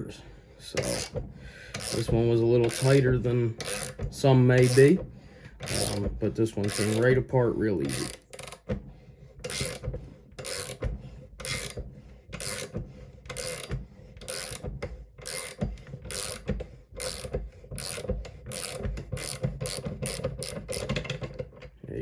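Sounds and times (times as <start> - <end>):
ratchet wrench clicking: 0.8 - 3.0, 3.6 - 5.0, 5.6 - 7.1, 7.8 - 8.7, 9.4 - 10.8, 11.4 - 11.8, 12.4 - 21.4.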